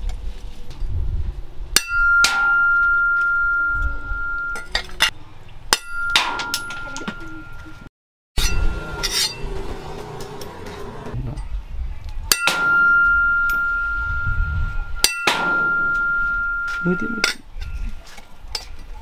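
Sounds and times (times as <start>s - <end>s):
cleaver striking metal: 1.8s - 3.7s, 5.7s - 7.2s, 8.4s - 9.5s, 12.3s - 14.0s, 15.0s - 17.4s
metallic ringing tone: 1.8s - 5.1s, 5.7s - 10.6s, 12.3s - 17.8s.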